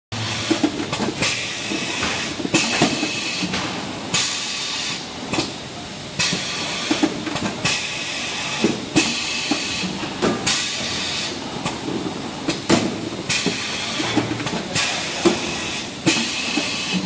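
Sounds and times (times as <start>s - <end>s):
machine clacks and knocks: 0.2s - 4.4s, 11.6s - 17.0s
pneumatic air hiss: 6.2s - 11.4s, 13.3s - 14.2s, 14.8s - 17.0s.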